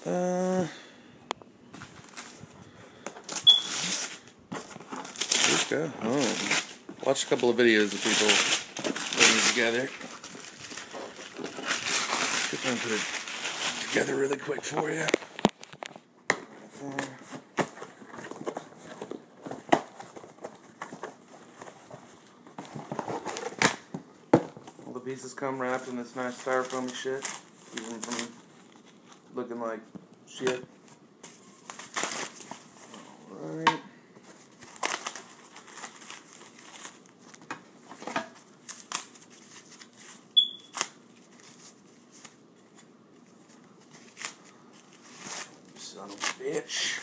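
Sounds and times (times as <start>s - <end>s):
packaging rustling: 1.7s - 2.6s, 3.2s - 16.0s, 17.2s - 23.9s, 25.6s - 29.4s, 34.2s - 47.0s
styrofoam squeak: 3.4s - 4.2s, 40.4s - 40.8s.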